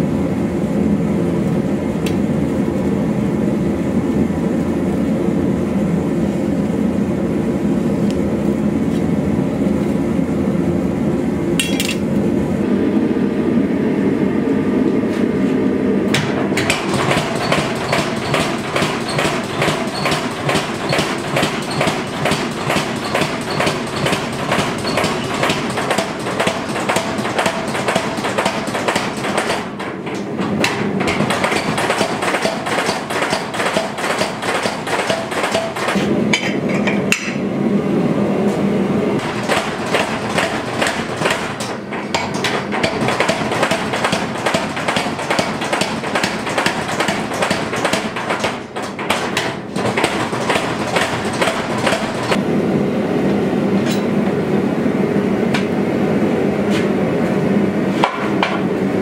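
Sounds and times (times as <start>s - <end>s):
power hammer pounding steel: 16.2s - 37.4s, 39.2s - 52.4s.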